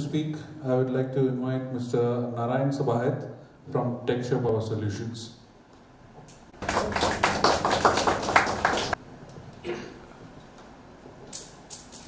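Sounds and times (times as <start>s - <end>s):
audience applause: 6.6s - 9.0s.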